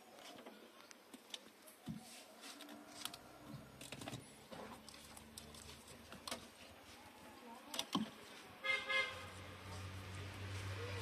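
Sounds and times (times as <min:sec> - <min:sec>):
rustling of wiring and plastic: 0:00.0 - 0:08.5
car horn: 0:08.6 - 0:09.3.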